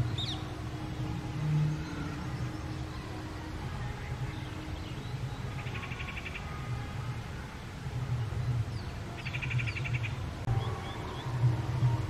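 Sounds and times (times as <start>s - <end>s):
steady low rumble: 6.6s - 12.0s.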